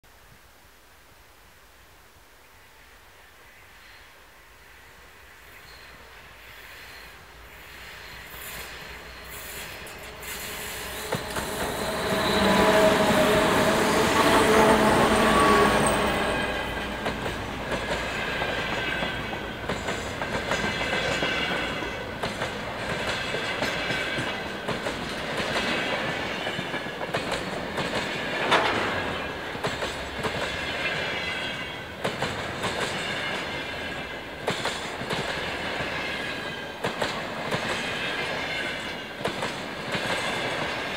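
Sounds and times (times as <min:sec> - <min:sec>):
diesel locomotive engine passing: 0:04.6 - 0:40.9
train wheels clickety-clack: 0:07.6 - 0:40.9
high-pitched wheel squeal: 0:07.9 - 0:16.8.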